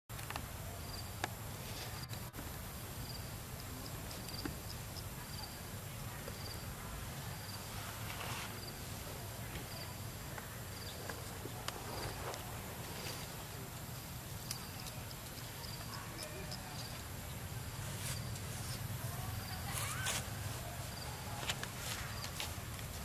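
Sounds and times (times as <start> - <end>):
insect chirping: 0.3 - 23.0
brief rustle: 19.7 - 20.4.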